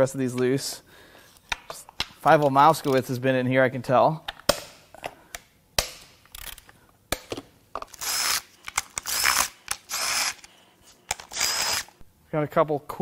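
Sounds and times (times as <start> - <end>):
impact wrench bursts: 8.0 - 10.5, 11.1 - 11.9.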